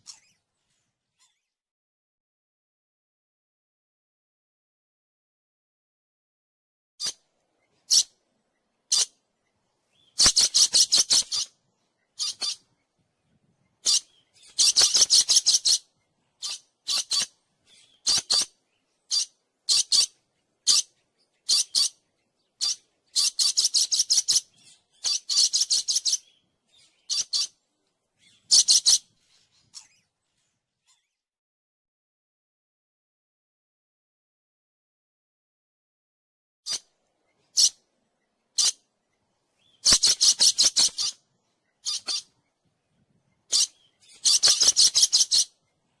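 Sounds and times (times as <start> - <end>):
shrill bird calls: 7.0 - 8.2, 10.0 - 12.8, 13.8 - 27.6, 28.2 - 30.1, 36.7 - 37.9, 38.5 - 38.8, 39.6 - 42.4, 43.5 - 45.6.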